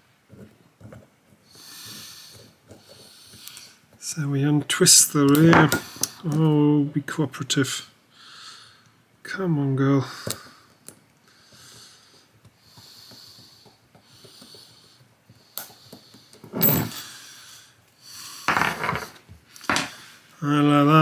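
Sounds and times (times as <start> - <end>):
man breathing heavily through nose: 1.4 - 3.8, 8.1 - 9.1, 10.0 - 18.6.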